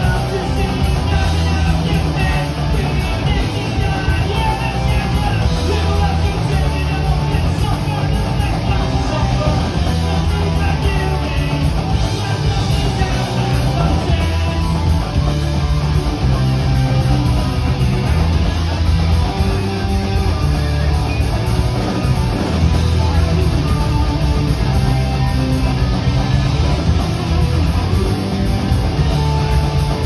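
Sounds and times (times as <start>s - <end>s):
drum kit: 0.0s - 30.0s
electric bass: 0.0s - 30.0s
electric guitars: 0.0s - 30.0s.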